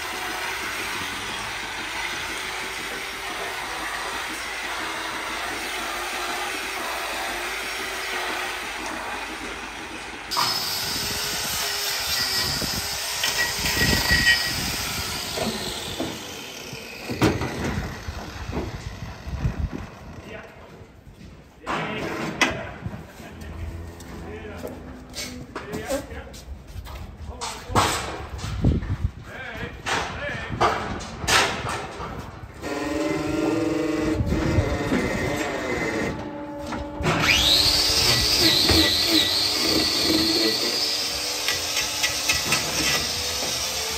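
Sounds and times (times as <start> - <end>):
electric motor humming: 0.0 - 20.0, 32.6 - 43.9
metal clanks and knocks: 41.4 - 43.6.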